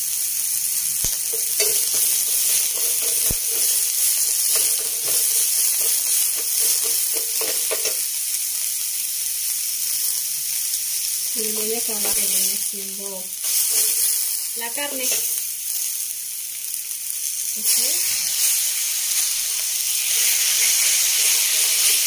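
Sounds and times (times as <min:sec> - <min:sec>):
onions sizzling in oil: 0:00.0 - 0:22.0
wooden spatula scraping pan: 0:01.3 - 0:07.9.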